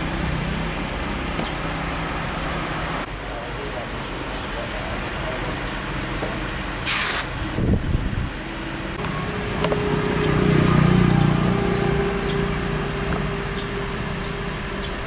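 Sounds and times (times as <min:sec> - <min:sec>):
outdoor background noise: 0:00.0 - 0:15.0
vehicle engine hum passing by: 0:07.6 - 0:15.0.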